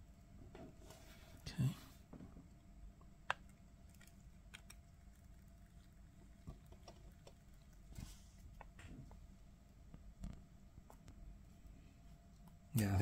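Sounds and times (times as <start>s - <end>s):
faint sharp clicks and crackles: 2.5s - 9.3s.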